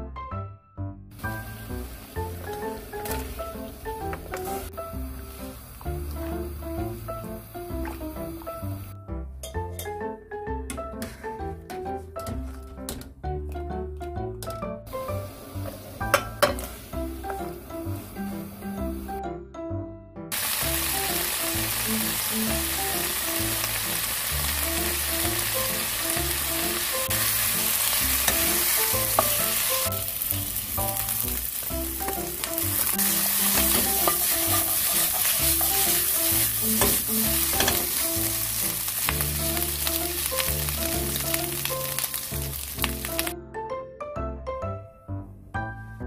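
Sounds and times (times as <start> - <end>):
light background music: 0.0 - 46.0
food sizzling in oil: 1.2 - 8.9, 20.3 - 43.3
spatula scraping pan: 32.0 - 38.0.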